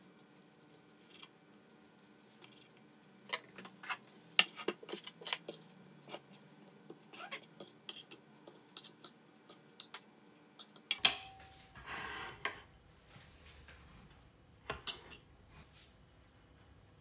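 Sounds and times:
plate knocking and ringing: 10.9s - 11.5s.

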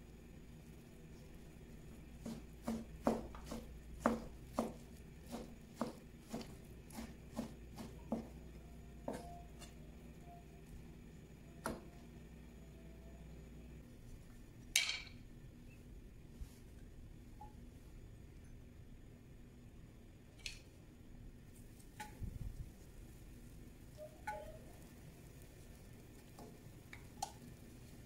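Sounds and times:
knife chopping on plastic board: 2.2s - 8.4s.

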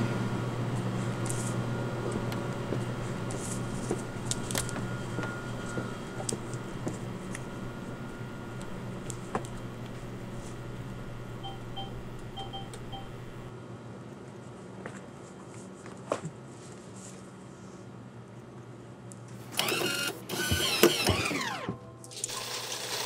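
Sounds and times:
low electrical hum: 0.0s - 20.8s
keypad beeps: 11.4s - 13.5s.

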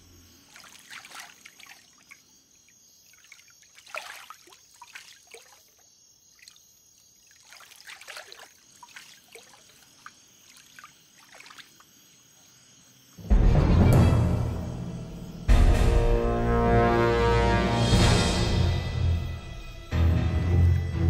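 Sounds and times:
water splashing and trickling: 0.0s - 12.8s.

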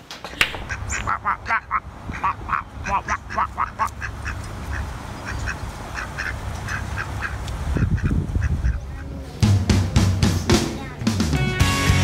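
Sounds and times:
ducks quacking: 0.4s - 11.0s
music with drum beat: 9.4s - 12.0s.

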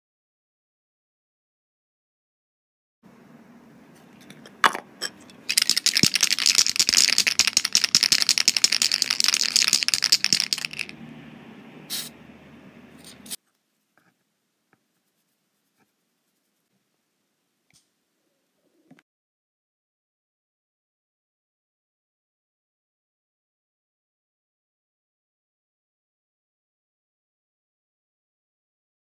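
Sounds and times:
spray can ball rattling: 5.4s - 10.9s.

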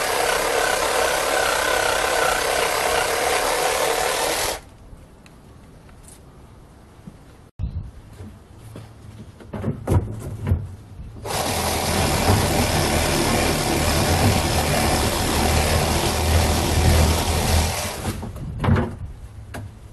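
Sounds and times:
reciprocating saw cutting branch: 0.0s - 4.7s
knocks and clunks: 9.2s - 11.3s, 17.9s - 19.7s.

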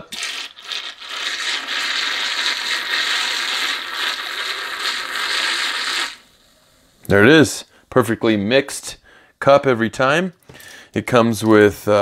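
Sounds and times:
handheld frother whirring: 0.1s - 6.2s.

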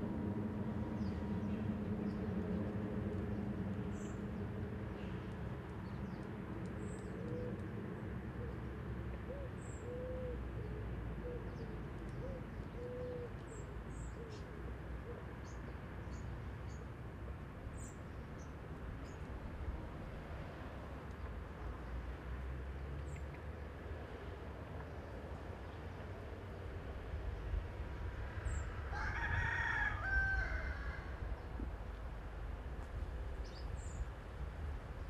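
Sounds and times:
steady low rumble: 0.0s - 7.8s
pigeon cooing: 9.3s - 11.5s, 12.2s - 13.4s.

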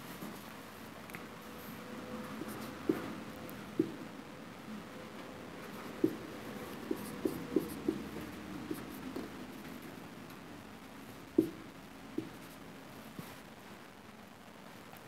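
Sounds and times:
marker writing on a whiteboard: 2.2s - 4.1s, 5.5s - 10.0s, 10.8s - 13.4s.

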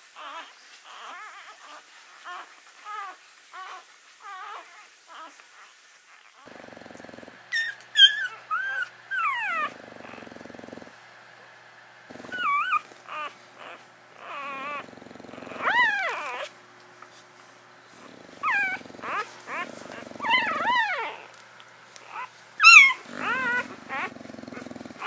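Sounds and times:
dogs whimpering squeals: 0.2s - 6.4s, 7.0s - 10.8s, 12.1s - 16.5s, 18.0s - 21.4s, 22.0s - 25.0s
dog low buzzing grunts: 6.4s - 7.7s, 9.4s - 11.2s, 12.0s - 16.6s, 17.2s - 21.4s, 22.0s - 25.0s.

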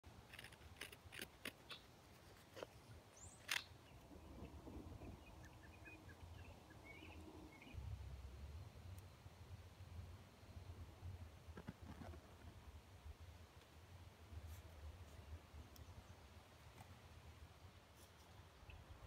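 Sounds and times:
knife cutting dry wood: 0.1s - 3.7s.

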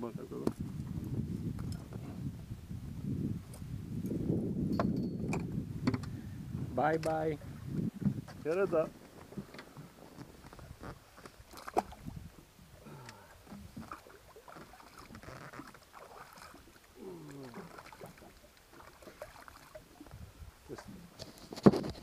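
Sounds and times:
water sloshing against a boat: 4.7s - 22.0s.

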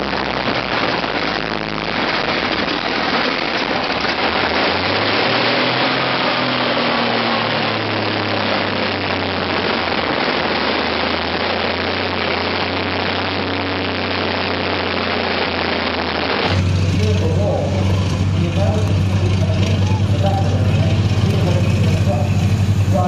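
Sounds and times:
tank engine running: 0.0s - 23.0s.

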